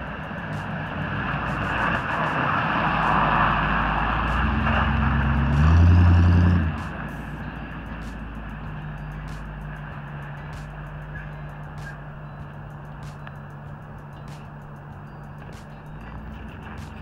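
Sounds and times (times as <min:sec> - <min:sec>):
tyre noise on snow: 0:00.0 - 0:09.9
pickup truck engine: 0:00.0 - 0:17.0.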